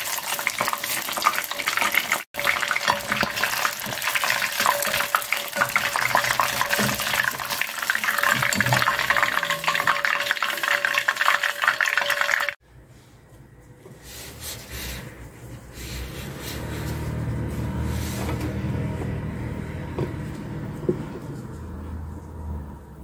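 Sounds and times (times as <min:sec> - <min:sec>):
oil sizzling and crackling: 0:00.0 - 0:12.6.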